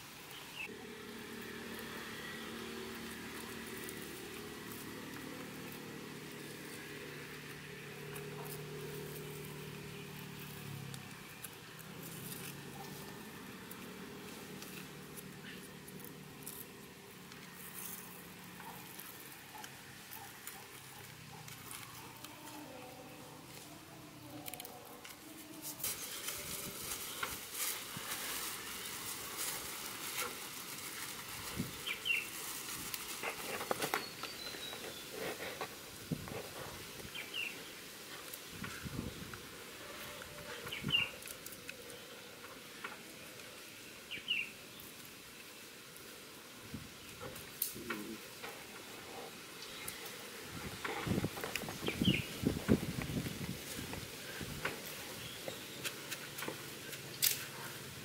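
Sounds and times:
low motor hum: 0:00.6 - 0:25.6
faint light crackles: 0:01.3 - 0:44.1, 0:44.7 - 0:58.0.

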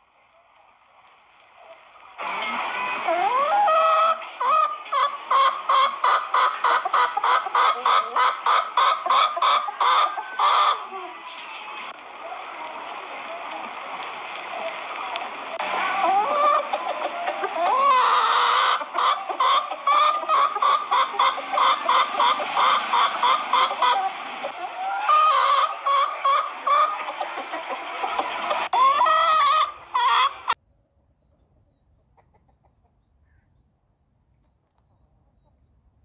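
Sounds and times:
chickens clucking: 0:01.7 - 0:30.6, 0:31.4 - 0:33.1
chicken squawks: 0:02.2 - 0:11.8, 0:15.6 - 0:30.6.

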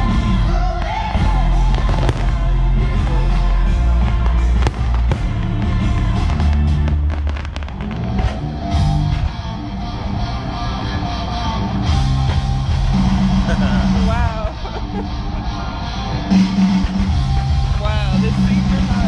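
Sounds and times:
fireworks crackling: 0:00.0 - 0:09.6, 0:11.9 - 0:15.0
loud music: 0:00.0 - 0:19.0
fireworks bangs: 0:00.6 - 0:09.5.

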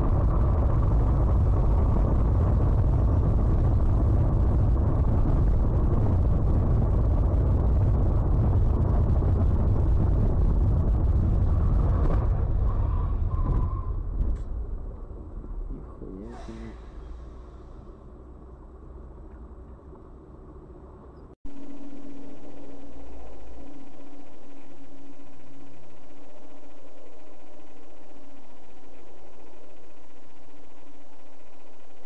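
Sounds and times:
vehicle rumbling on road: 0:00.0 - 0:32.0.

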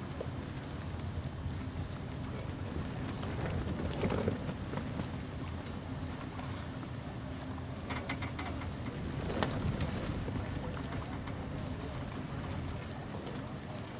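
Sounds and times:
wind on microphone: 0:08.7 - 0:12.8.

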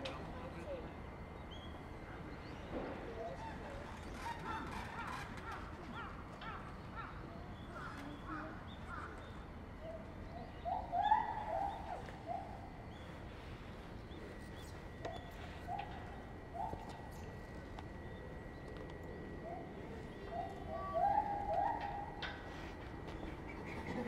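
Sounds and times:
animal chirp-like calls: 0:03.2 - 0:13.1, 0:19.4 - 0:24.0
lower animal calls: 0:19.3 - 0:24.0.

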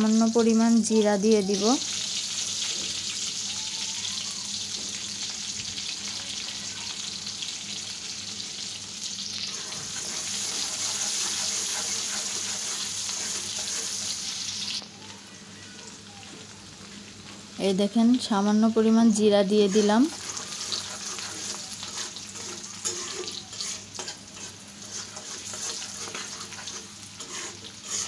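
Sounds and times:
onion sizzling in hot oil: 0:00.0 - 0:28.0.

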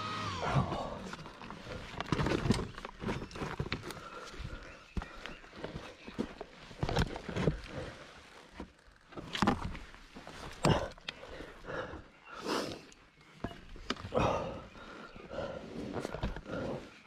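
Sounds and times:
man breathing heavily and grunting: 0:00.4 - 0:01.9, 0:10.4 - 0:13.0, 0:14.0 - 0:17.0.

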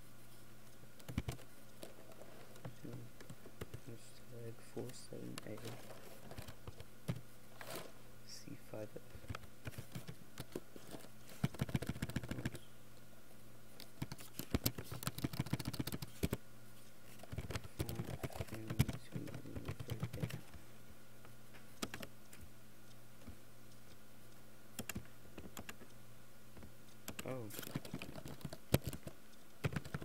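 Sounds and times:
computer keyboard typing: 0:01.0 - 0:03.9, 0:04.8 - 0:07.2, 0:09.2 - 0:12.6, 0:13.8 - 0:16.4, 0:17.1 - 0:20.6, 0:21.8 - 0:22.1, 0:24.8 - 0:25.9, 0:27.0 - 0:30.0.

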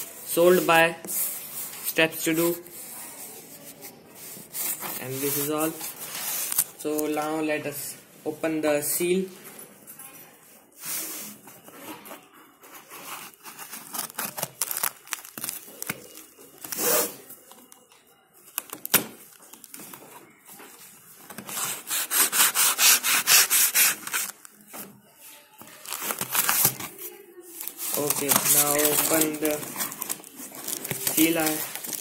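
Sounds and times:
scraping on cardboard: 0:21.4 - 0:24.3.

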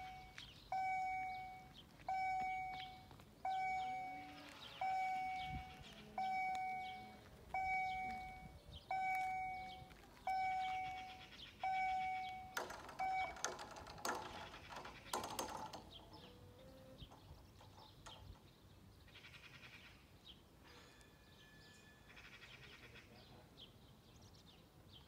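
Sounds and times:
level crossing warning bell: 0:00.0 - 0:14.9, 0:20.6 - 0:23.1
barriers knocking and rattling: 0:12.0 - 0:16.4.

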